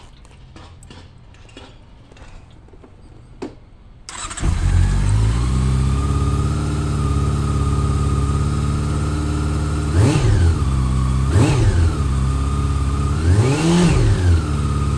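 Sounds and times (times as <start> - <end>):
starter whir: 4.1 - 8.2
motorcycle engine idling: 4.1 - 11.3.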